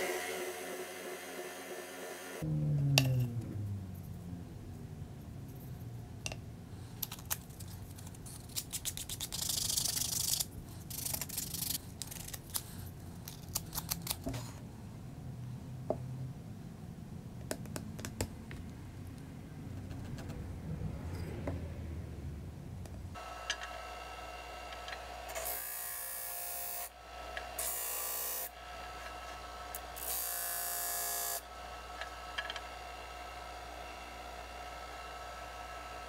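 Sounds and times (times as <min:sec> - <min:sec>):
disc sander whining: 0:00.0 - 0:02.5, 0:23.2 - 0:26.3
low hum: 0:00.0 - 0:06.8.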